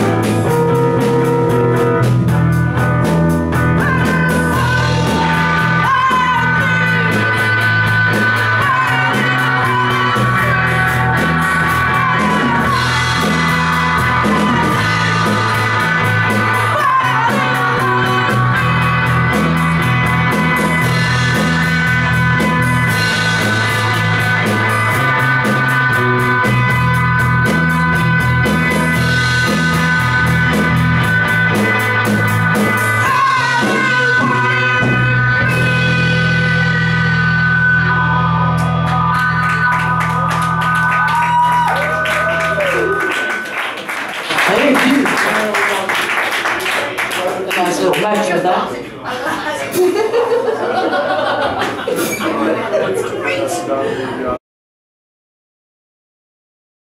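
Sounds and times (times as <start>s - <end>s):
rock band playing: 0.0s - 48.8s
person singing: 3.6s - 30.8s, 31.5s - 43.5s.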